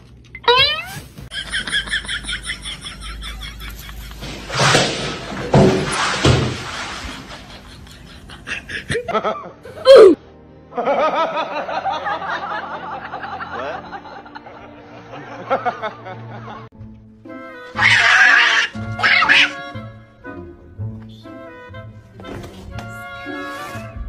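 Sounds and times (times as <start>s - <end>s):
loud sound falling in pitch: 0.4s - 1.0s
laughter: 1.3s - 4.3s, 7.0s - 9.8s, 10.7s - 16.7s
music: 7.2s - 24.0s.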